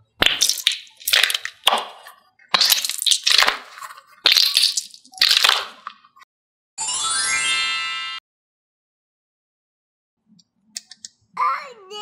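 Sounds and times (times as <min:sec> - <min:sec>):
stress ball squeezed crackling: 0:00.2 - 0:06.0
rising chime effect: 0:06.8 - 0:08.2.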